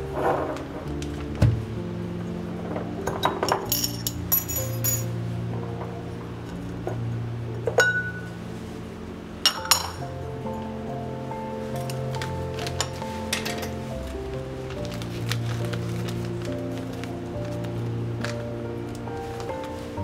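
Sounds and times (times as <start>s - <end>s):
soft background music: 0.0s - 20.0s
kitchenware clinking: 3.1s - 5.1s, 9.5s - 10.0s.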